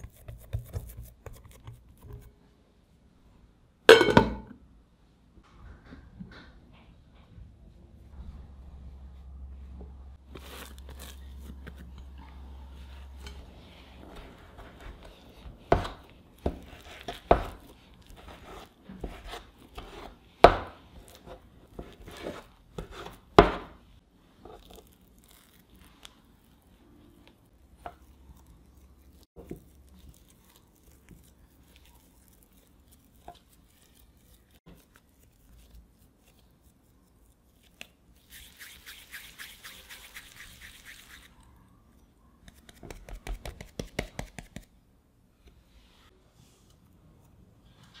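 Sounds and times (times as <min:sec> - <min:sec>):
soft dough handling: 0:06.7 - 0:48.0.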